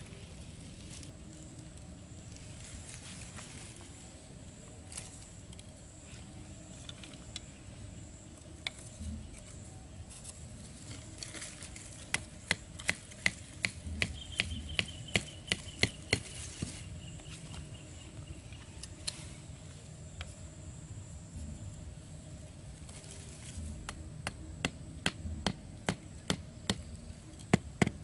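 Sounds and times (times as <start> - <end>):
hatchet knocking wooden stake: 12.1 - 16.3, 27.5 - 28.0.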